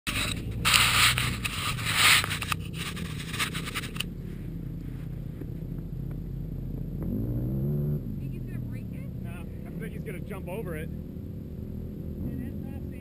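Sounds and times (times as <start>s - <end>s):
camera scraping in sand: 0.1s - 4.1s
distant engine revving: 0.1s - 13.0s.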